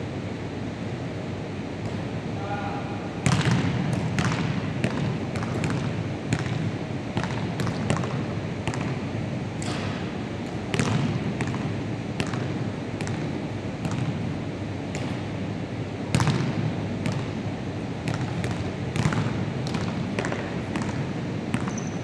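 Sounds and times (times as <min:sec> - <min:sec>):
basketballs bouncing on wooden floor: 0:03.2 - 0:14.3, 0:14.9 - 0:15.2, 0:16.1 - 0:17.4, 0:18.0 - 0:22.0
balls striking backboard and rim: 0:03.2 - 0:15.4, 0:16.0 - 0:22.0.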